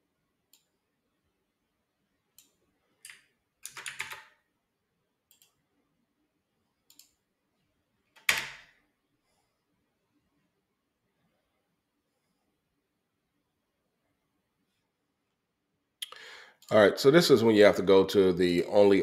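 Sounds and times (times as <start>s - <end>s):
keyboard and mouse clicks: 2.3s - 4.4s, 5.3s - 5.6s, 6.8s - 7.2s, 8.1s - 8.7s.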